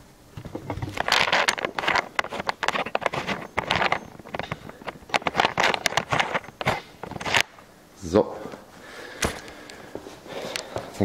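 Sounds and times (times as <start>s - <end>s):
camera handling scraping and clicking: 0.7s - 7.5s.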